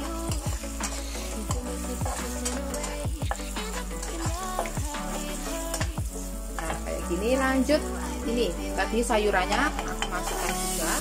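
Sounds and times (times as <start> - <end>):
spatula stirring and scraping: 0.0 - 6.8, 9.4 - 11.0
background music: 0.0 - 11.0
food sizzling in oil: 0.0 - 11.0.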